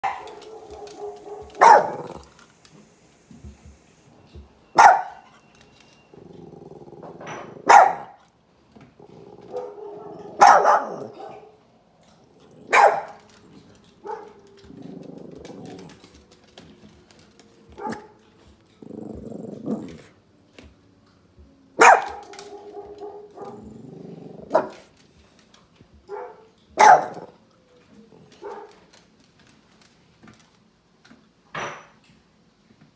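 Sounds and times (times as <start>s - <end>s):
dog barking: 0.0s - 2.3s, 4.8s - 5.3s, 7.3s - 8.2s, 9.3s - 11.6s, 12.7s - 13.2s, 14.0s - 14.5s, 17.8s - 18.1s, 21.8s - 23.7s, 24.5s - 24.9s, 26.1s - 27.4s, 28.4s - 28.9s.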